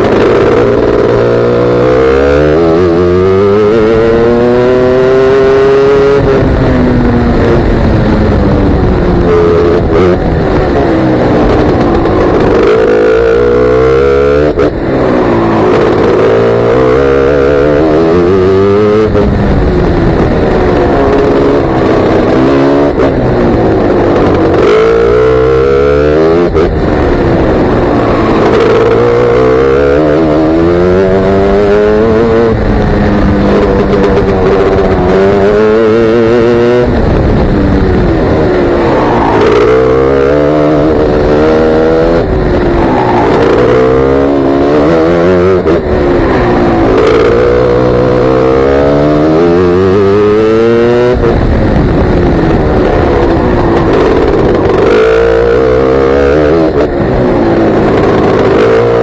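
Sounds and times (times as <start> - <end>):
racing kart engine revving: 0.0 - 59.0.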